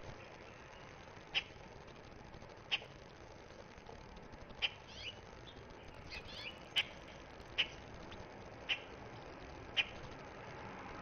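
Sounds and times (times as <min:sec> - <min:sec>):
soft bird twittering: 0:04.6 - 0:08.9
bird chip calls: 0:04.6 - 0:09.0, 0:09.7 - 0:10.0.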